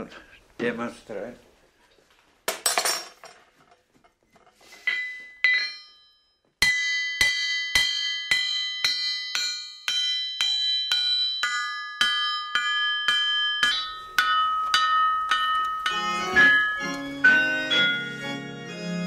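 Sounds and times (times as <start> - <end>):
hammer ringing on anvil: 4.8 - 18.1.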